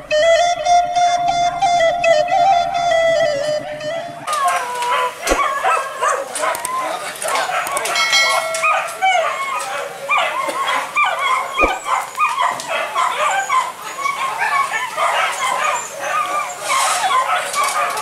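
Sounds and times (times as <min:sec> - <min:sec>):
dogs yelping and whining: 0:00.0 - 0:18.0
sharp knock: 0:05.3 - 0:05.5, 0:11.6 - 0:11.9.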